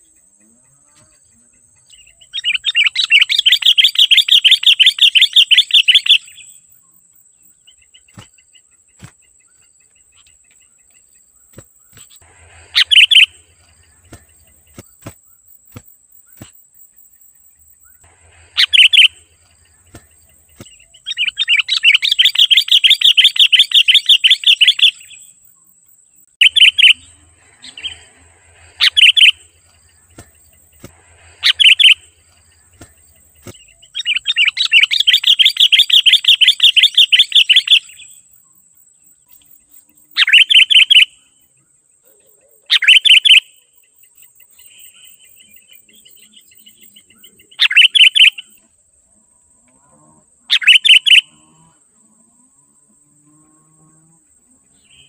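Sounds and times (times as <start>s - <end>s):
short sharp bird chirps: 11.3s - 16.6s, 17.8s - 25.3s, 26.2s - 38.2s, 40.2s - 41.3s, 42.7s - 43.6s, 44.5s - 48.6s, 50.5s - 51.4s
bird chattering calls: 11.5s - 15.1s, 18.0s - 25.0s, 26.4s - 37.8s, 50.5s - 51.3s.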